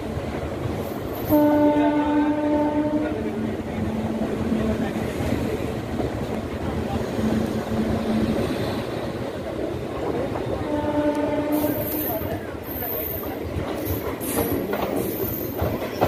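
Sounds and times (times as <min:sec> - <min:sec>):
train wheels rumbling on track: 0:00.0 - 0:16.0
train horn: 0:01.2 - 0:04.8, 0:10.6 - 0:12.2.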